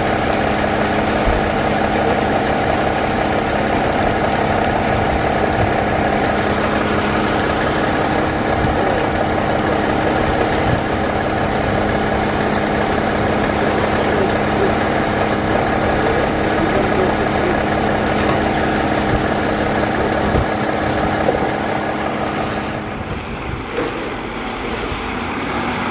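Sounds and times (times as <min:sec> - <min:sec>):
fire truck engine idling: 0:00.0 - 0:25.9.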